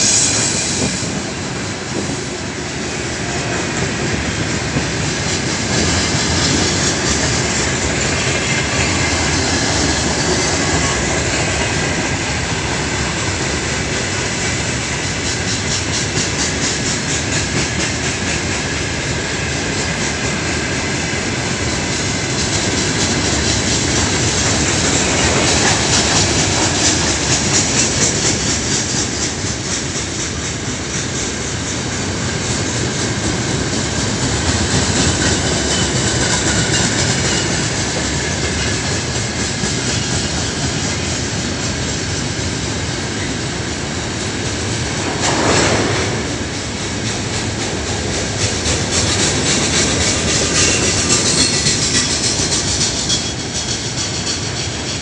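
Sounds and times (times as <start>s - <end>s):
train wheels clattering over rail joints: 0.0s - 55.0s
rush of noise: 41.2s - 55.0s.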